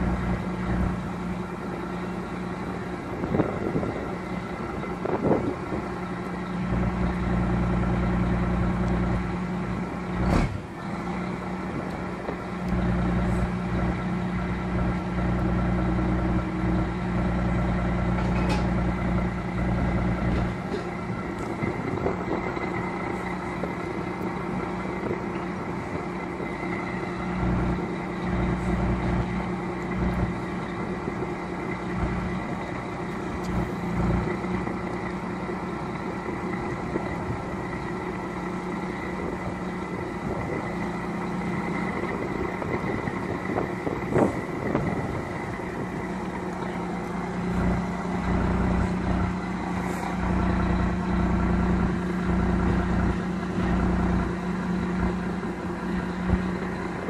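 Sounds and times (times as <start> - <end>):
diesel engine running at low revs: 0.0 - 57.0
loud metal clunk: 10.2 - 10.7.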